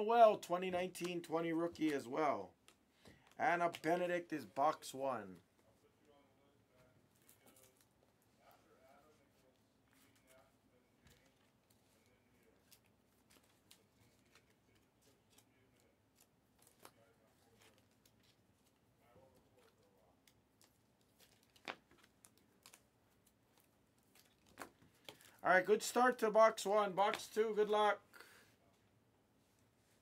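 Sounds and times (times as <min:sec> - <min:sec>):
trading cards clicking and tapping: 0:00.3 - 0:04.8.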